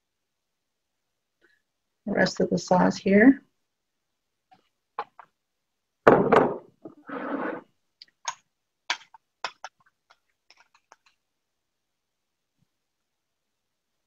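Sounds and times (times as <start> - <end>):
utensil scraping: 6.9 - 7.7.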